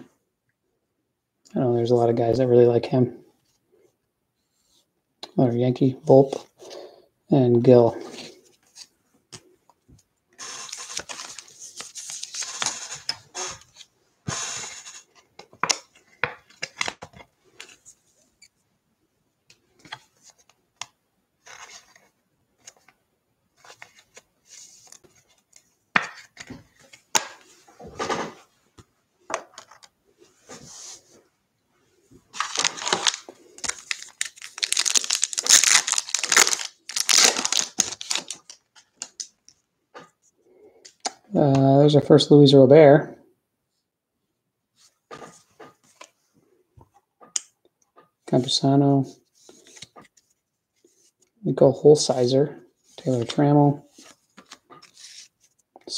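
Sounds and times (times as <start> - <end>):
card pack wrapper tearing and crinkling: 10.4 - 13.6, 32.3 - 39.3.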